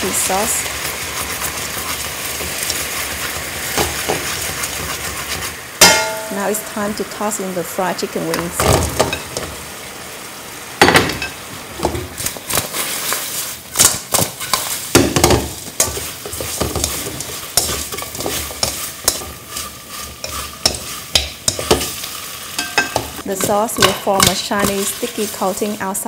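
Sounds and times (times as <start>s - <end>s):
utensil scraping metal wok: 0.0s - 9.7s, 11.8s - 26.0s
sauce sizzling: 0.0s - 26.0s.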